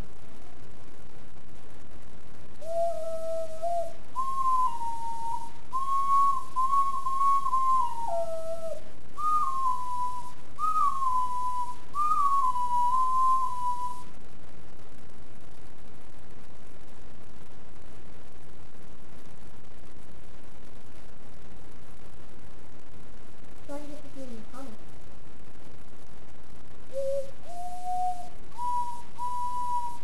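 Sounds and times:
ocarina playing slow melody: 0:02.6 - 0:14.1, 0:26.9 - 0:30.0.

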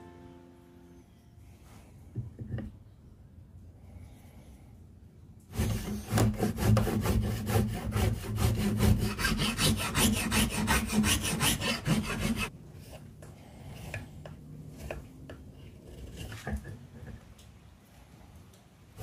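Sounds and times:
rasp strokes on wood: 0:05.5 - 0:13.0
knife blade scraping wood: 0:05.6 - 0:13.1, 0:14.7 - 0:16.9.

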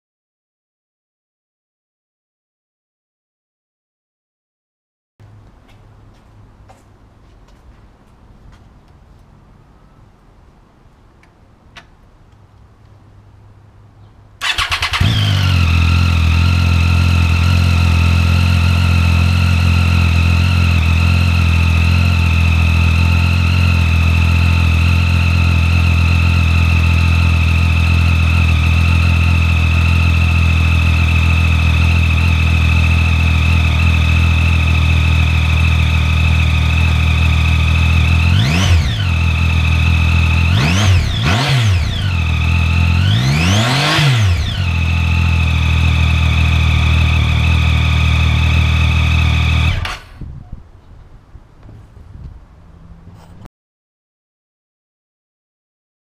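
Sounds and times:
engine revving: 0:14.4 - 0:50.2
motorcycle engine starting and idling: 0:14.4 - 0:50.2.

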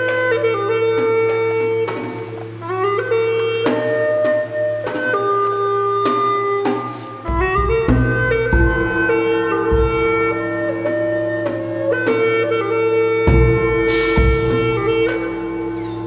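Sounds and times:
melody of held notes: 0:00.0 - 0:16.0
sharp percussive strikes: 0:06.0 - 0:12.2, 0:13.2 - 0:16.0
deep low beat: 0:07.2 - 0:11.5, 0:13.2 - 0:16.0.

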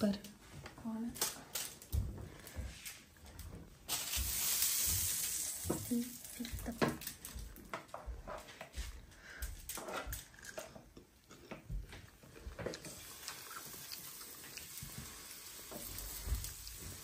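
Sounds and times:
faint sizzle from hot griddle: 0:03.9 - 0:07.2, 0:12.9 - 0:17.0.

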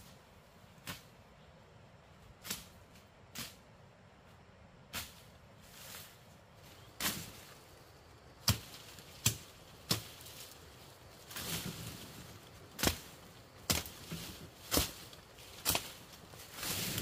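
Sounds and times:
noise: 0:00.0 - 0:17.0
blade chopping bamboo: 0:08.4 - 0:10.3, 0:12.8 - 0:16.0.

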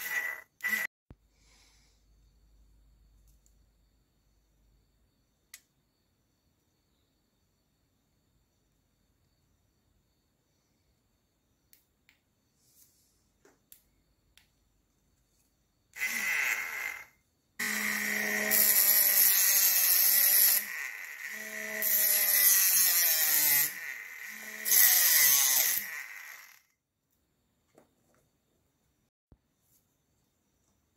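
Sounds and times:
small motor whining: 0:00.0 - 0:00.9, 0:16.0 - 0:26.7
cutting disc rasping on rod: 0:16.0 - 0:26.6.

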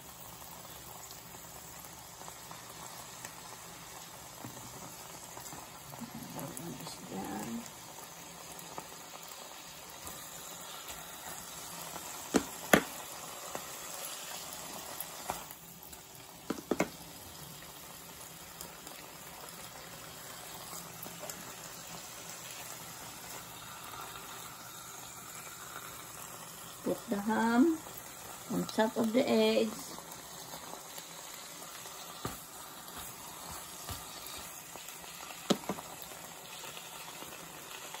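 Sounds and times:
ham sizzling in a pan: 0:00.0 - 0:38.0
spatula knocking against pan: 0:16.5 - 0:17.0.

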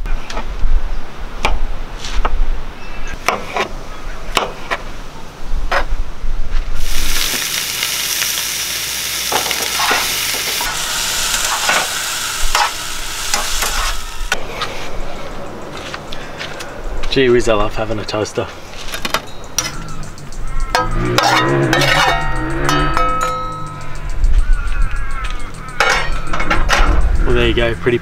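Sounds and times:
butter sizzling in frying pan: 0:06.8 - 0:14.3.

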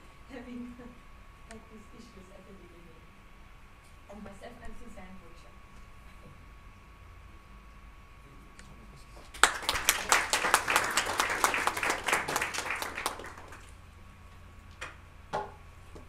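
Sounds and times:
audience applauding: 0:09.3 - 0:13.8.

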